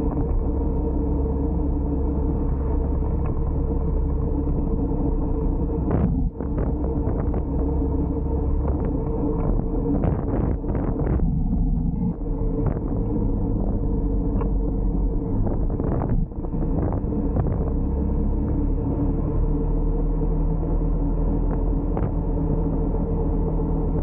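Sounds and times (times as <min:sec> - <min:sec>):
scooter engine rumbling: 0:00.0 - 0:18.8.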